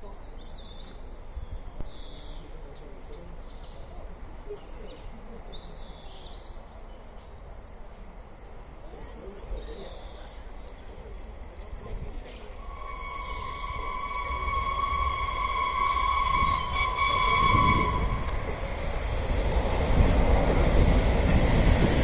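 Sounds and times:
small birds chirping: 0.0 - 14.5
steam locomotive whistle: 12.6 - 18.6.

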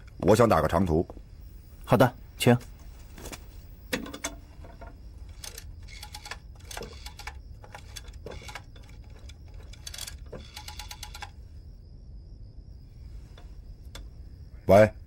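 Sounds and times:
rotary telephone dial clicking: 5.3 - 11.3.

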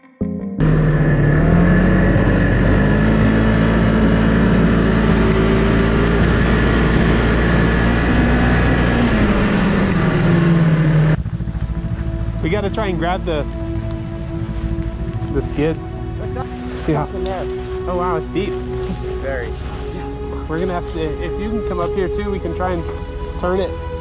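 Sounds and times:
snowmobile engine: 0.6 - 24.0
wind and track noise: 1.2 - 16.5.

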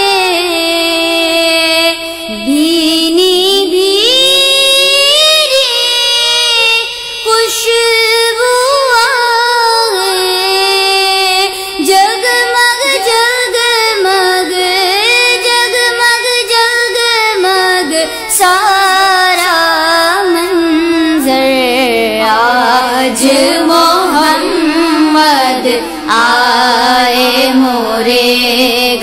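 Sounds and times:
young woman singing: 0.0 - 29.0.

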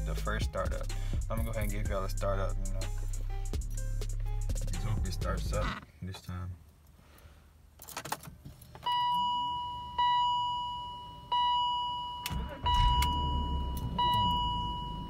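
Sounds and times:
dashboard warning chime: 8.8 - 15.0
car engine cranking and idling: 12.2 - 15.0.

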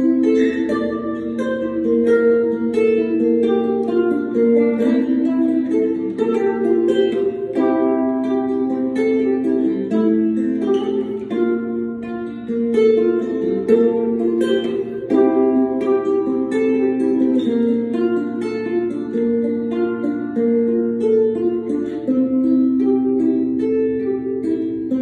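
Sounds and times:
ukulele fingerpicked: 0.0 - 25.0.

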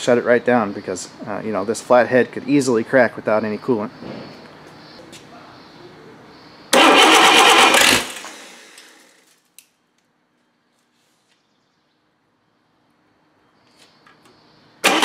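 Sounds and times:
engine firing on starter: 6.7 - 9.3, 14.8 - 15.0.

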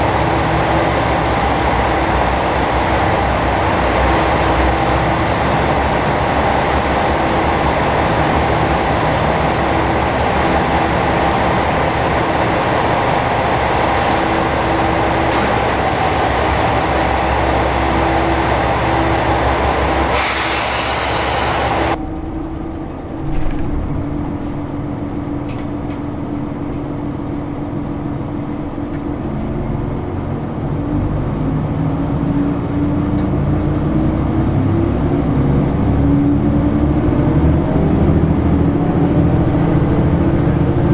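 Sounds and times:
diesel railcar engines running: 0.0 - 40.9
loud hiss: 20.1 - 22.0.

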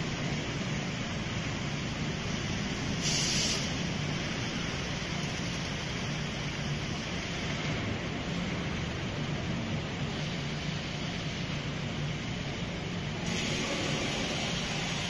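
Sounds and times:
machinery hum and hiss: 0.0 - 15.0
short loud hiss: 3.0 - 3.7.

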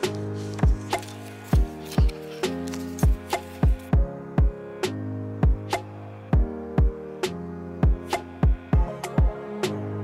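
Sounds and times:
electronic drum beat music: 7.8 - 9.4.

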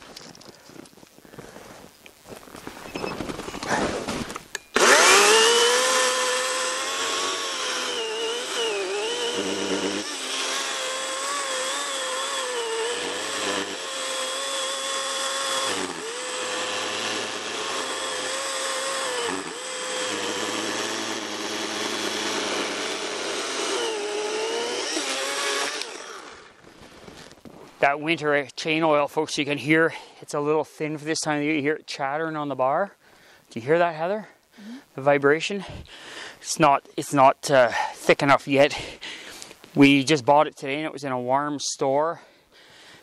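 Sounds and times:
battery chainsaw cutting log: 3.6 - 27.1.

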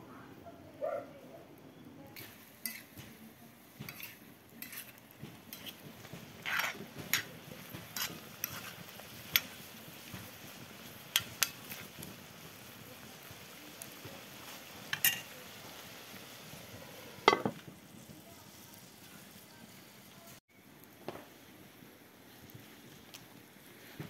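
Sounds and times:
metal spoon scraping iron pan: 2.2 - 3.0, 3.8 - 9.6.

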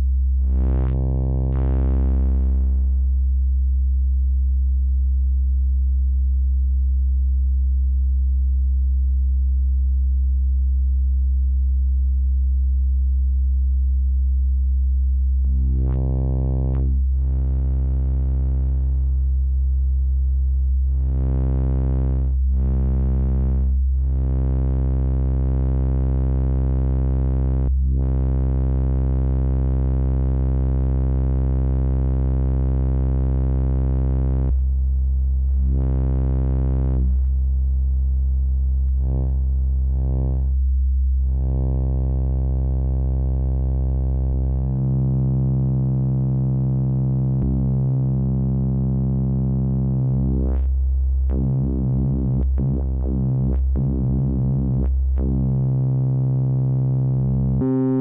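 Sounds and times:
synthesizer low note: 0.0 - 2.9, 15.4 - 19.2, 38.8 - 42.4, 43.0 - 58.0.

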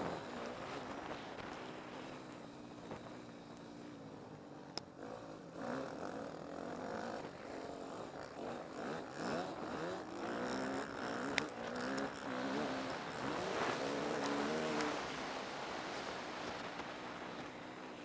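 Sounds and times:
motocross bike engine revving: 4.9 - 15.4.

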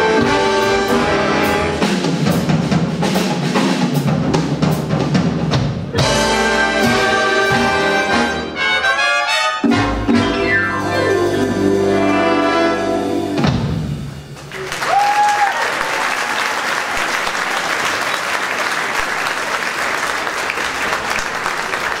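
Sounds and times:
jazz big band chord: 0.0 - 14.3
audience applauding: 14.4 - 22.0
high cheer: 14.4 - 22.0.

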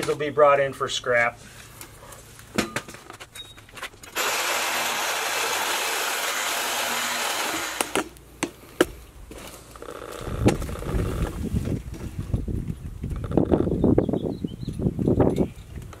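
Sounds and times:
power saw cutting copper tubes: 4.1 - 8.2.

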